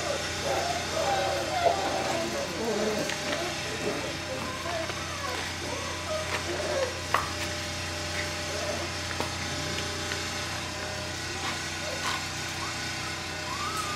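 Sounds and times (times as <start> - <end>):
steady low hum: 0.0 - 13.9
puppies scuffling with a toy: 0.4 - 10.7.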